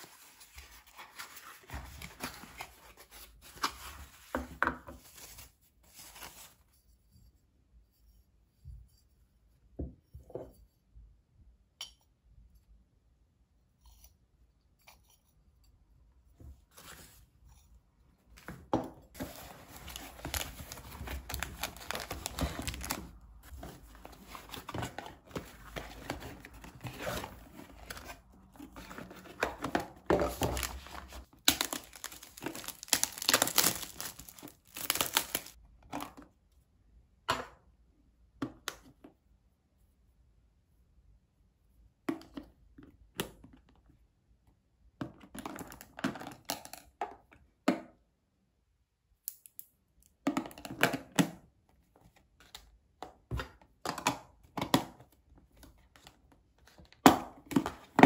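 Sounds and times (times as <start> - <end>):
packaging crinkling and tearing: 19.2 - 23.2, 30.3 - 35.6.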